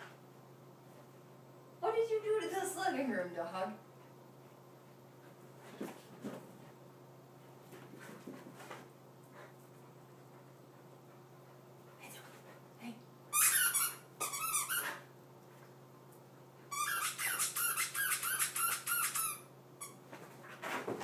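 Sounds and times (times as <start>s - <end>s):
squeaky toy squeaking: 13.3s - 15.0s, 16.7s - 20.0s.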